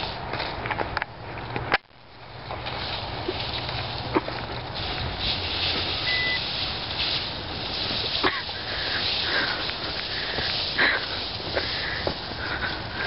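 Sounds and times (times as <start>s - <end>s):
spruce branches rustling: 0.0s - 13.0s
high beep: 6.0s - 6.4s.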